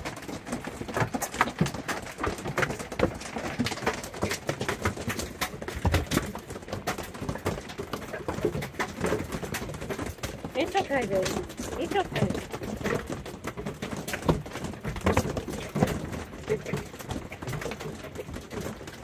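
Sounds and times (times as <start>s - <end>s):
hail clattering on metal roof: 0.0s - 19.0s.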